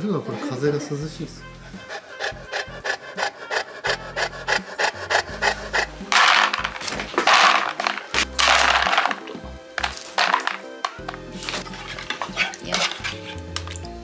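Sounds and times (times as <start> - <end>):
dog panting rapidly: 1.6 - 7.1
dry kibble pouring into plastic tub: 6.1 - 12.5.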